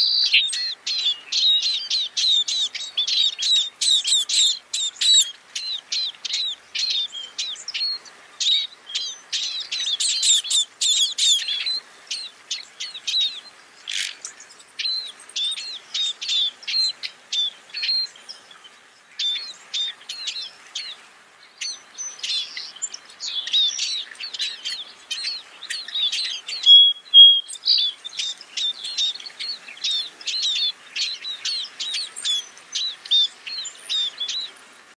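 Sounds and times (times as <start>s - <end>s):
finch chirping: 0.0s - 34.5s
bird whistle: 23.3s - 29.2s.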